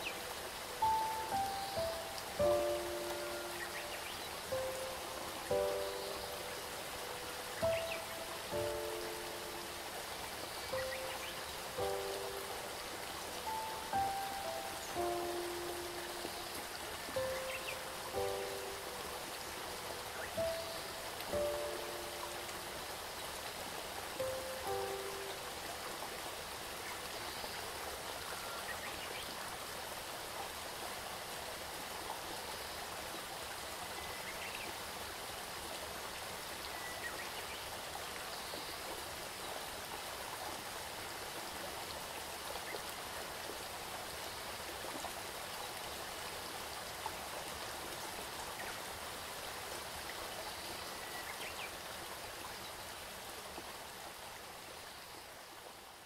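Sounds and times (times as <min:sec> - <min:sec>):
stream water rushing: 0:00.0 - 0:56.0.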